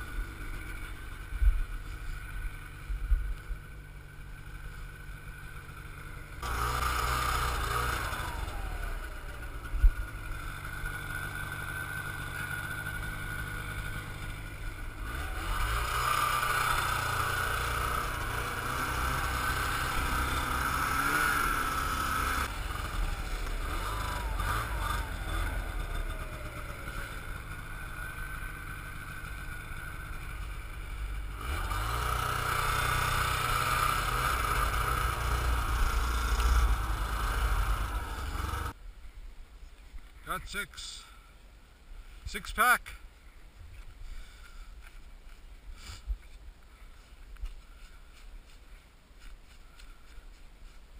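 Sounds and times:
snowmobile engine revving: 0:00.0 - 0:38.8.

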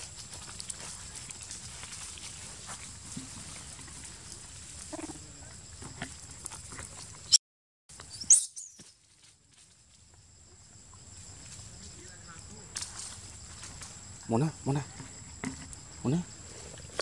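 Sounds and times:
animals scuffling over dry leaves: 0:00.0 - 0:05.4, 0:11.1 - 0:14.2
high insect drone: 0:09.0 - 0:17.0.

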